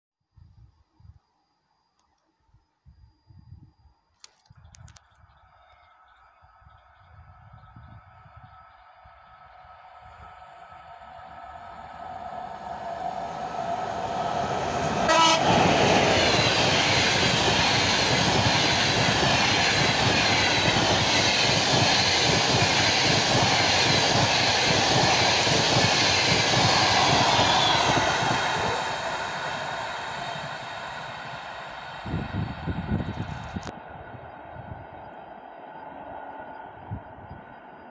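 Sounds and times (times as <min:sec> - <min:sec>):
train wheels clattering on rails: 0:14.5 - 0:31.9
train horn blast: 0:14.8 - 0:16.2, 0:26.7 - 0:28.9.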